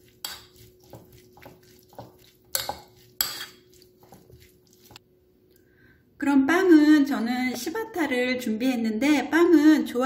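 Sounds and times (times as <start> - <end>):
metal spoon scraping bowl: 0.0 - 5.0.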